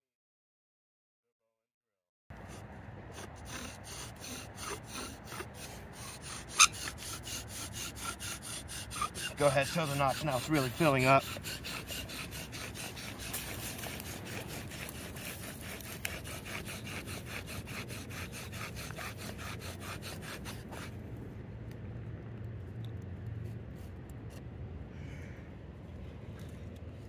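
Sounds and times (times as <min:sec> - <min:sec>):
bow drill spindle grinding: 0:02.4 - 0:20.9.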